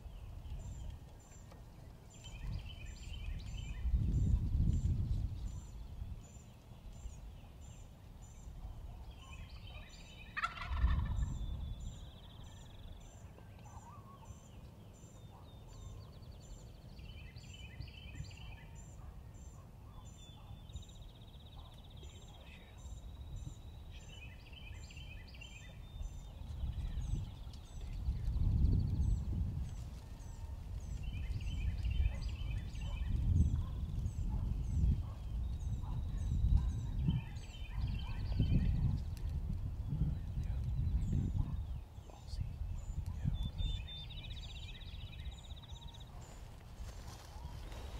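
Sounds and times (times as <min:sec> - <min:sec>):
turkey gobbling: 0:10.3 - 0:11.3.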